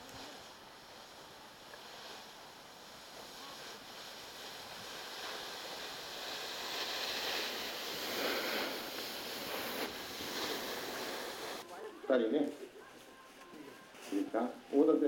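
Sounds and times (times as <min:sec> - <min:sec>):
snowboards scraping over snow: 0:00.0 - 0:11.6.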